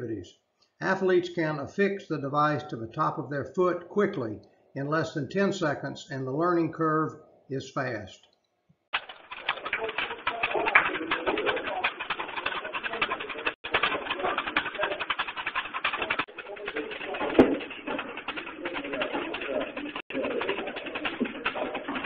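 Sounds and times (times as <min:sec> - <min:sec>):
weight room background: 0:00.0 - 0:09.6
flexible bar fluttering rattle: 0:09.0 - 0:22.0.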